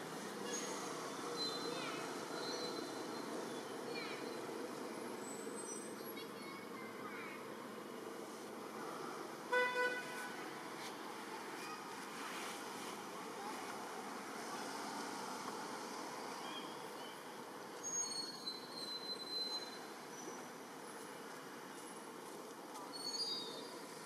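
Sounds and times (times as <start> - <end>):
distant traffic: 0.0 - 24.0
vehicle horn toot: 9.5 - 10.3.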